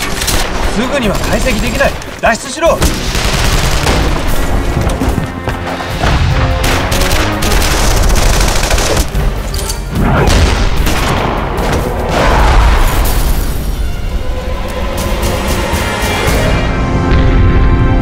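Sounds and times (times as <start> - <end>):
dramatic music: 0.0 - 18.0
gunfire bursts: 2.8 - 4.4, 6.3 - 9.2.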